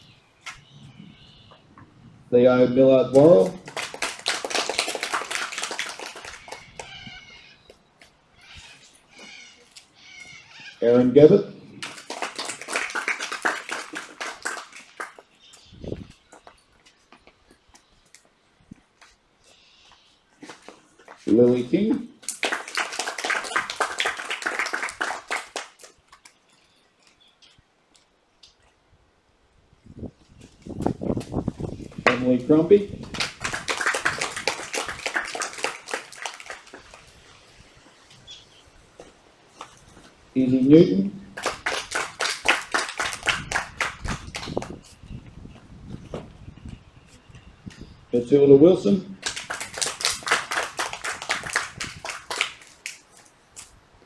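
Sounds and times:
children applauding: 3.4s - 7.4s, 11.8s - 15.3s, 22.2s - 26.0s, 33.0s - 37.1s, 41.4s - 44.8s, 49.2s - 53.0s.

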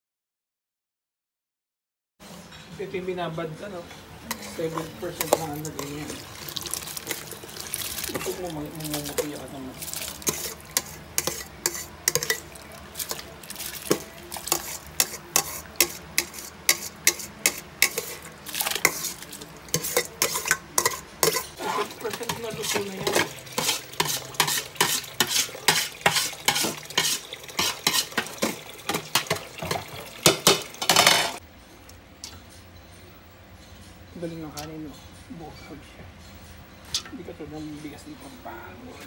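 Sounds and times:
metal spoon scraping metal strainer: 4.3s - 31.4s.

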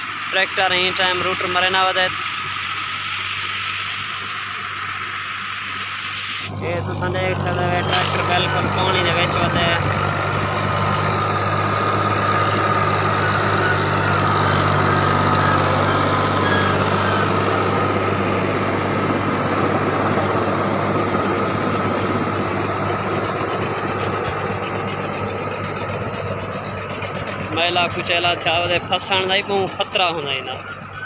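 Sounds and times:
diesel tractor engine under load: 0.0s - 31.0s
mud and water churning: 7.4s - 31.0s.

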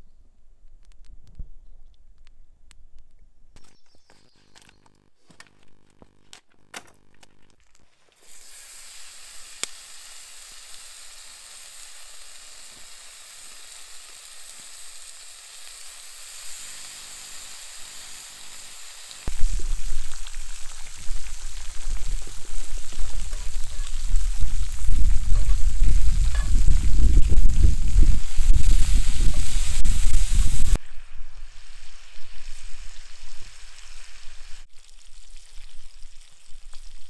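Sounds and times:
crinkles and clicks: 0.6s - 8.3s
bacon sizzling in skillet: 7.0s - 37.0s.

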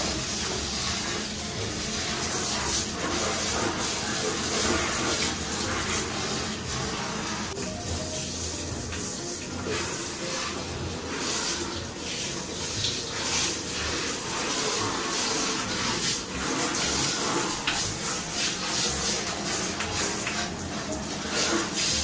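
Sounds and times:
shower water spraying on plastic: 0.0s - 22.0s.

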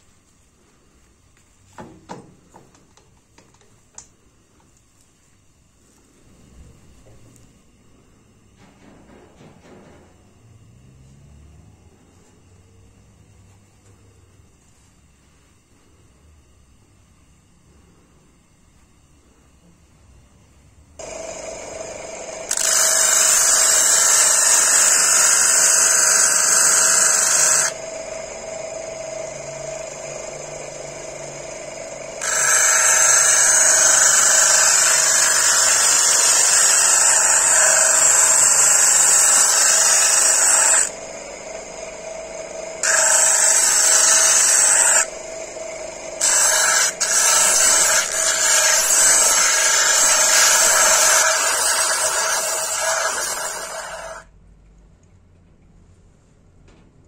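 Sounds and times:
bench grinder motor humming: 21.0s - 54.3s
grinding hiss: 21.0s - 54.3s.

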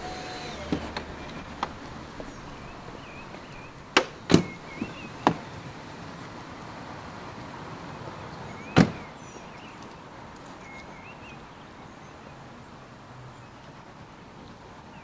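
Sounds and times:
car door slamming: 0.0s - 5.5s, 8.7s - 9.1s
outdoor background noise: 0.0s - 15.0s.

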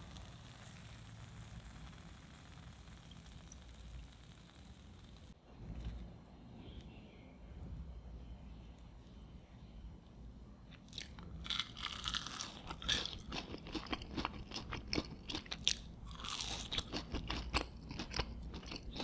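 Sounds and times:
fries being bitten and chewed: 10.8s - 19.0s.

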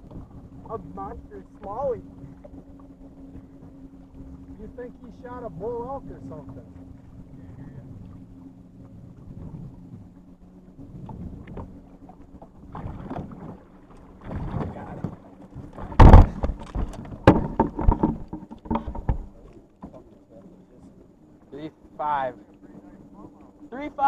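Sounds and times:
knocks and thumps in a boat: 0.0s - 24.0s
low steady hum: 0.0s - 24.0s
loud thud: 15.8s - 16.6s.

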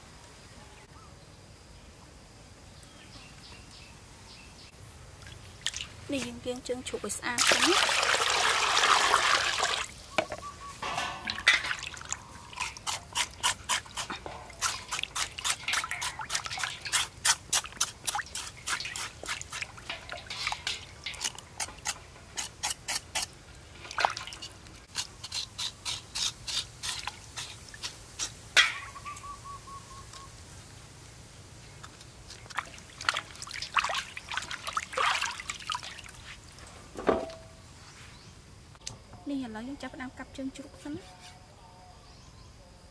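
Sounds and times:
water splashing and dripping: 5.2s - 6.4s, 7.3s - 24.9s, 31.8s - 37.4s
water pouring into metal bowl: 7.4s - 9.9s, 14.7s - 17.1s.

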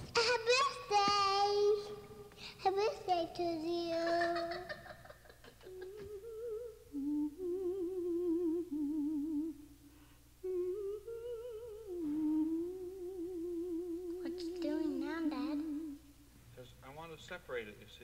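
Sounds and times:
person humming: 5.5s - 9.7s, 10.4s - 16.1s.

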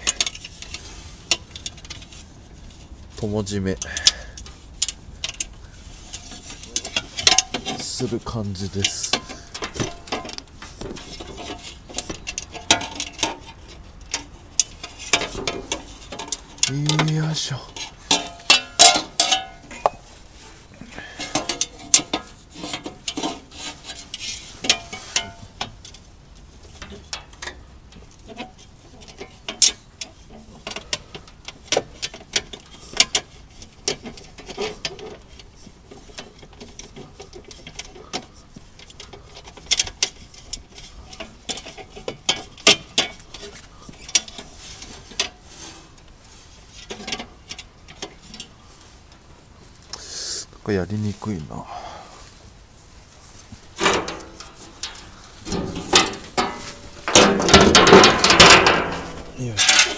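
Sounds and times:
metal plate clicks and taps: 17.8s - 20.0s, 53.8s - 59.9s.

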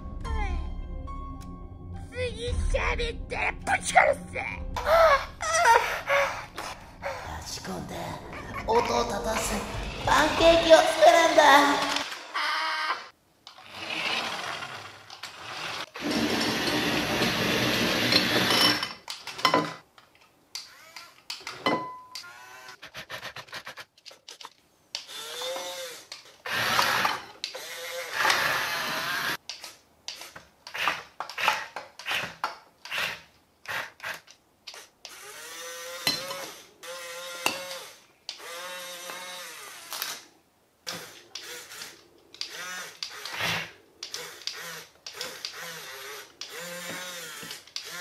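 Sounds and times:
small electric motors whining: 20.6s - 21.4s, 22.2s - 22.8s, 25.0s - 29.4s, 34.0s - 40.2s, 40.8s - 48.0s.

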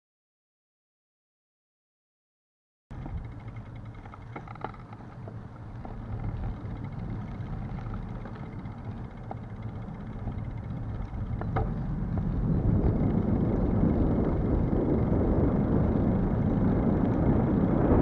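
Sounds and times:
light rattling clicks: 2.9s - 12.3s
bicycle tyres rumbling on asphalt: 2.9s - 18.0s
wind on microphone: 2.9s - 18.0s.

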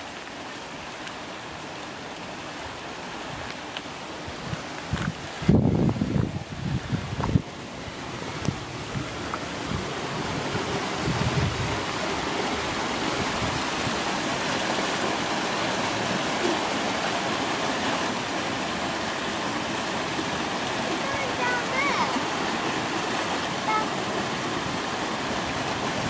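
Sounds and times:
stream rushing: 0.0s - 26.0s.

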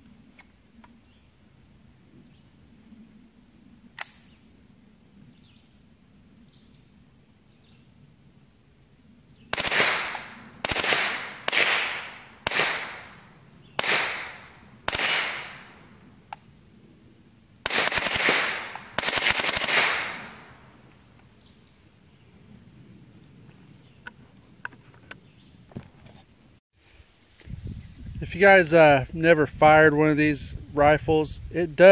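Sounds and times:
rifle shots: 9.5s - 15.8s, 17.6s - 20.6s.

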